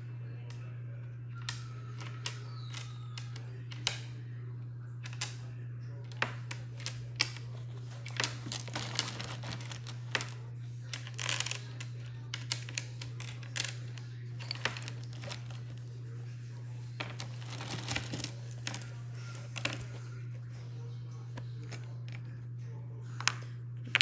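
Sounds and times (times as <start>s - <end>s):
low electrical hum: 0.0s - 24.0s
wooden tiles clicking: 6.1s - 15.8s, 17.0s - 20.0s.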